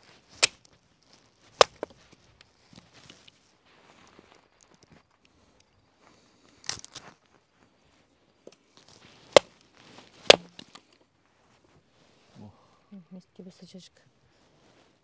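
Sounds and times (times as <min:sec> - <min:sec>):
hatchet chopping firewood: 0:00.3 - 0:00.6, 0:01.6 - 0:01.9, 0:09.3 - 0:09.6, 0:10.2 - 0:10.8.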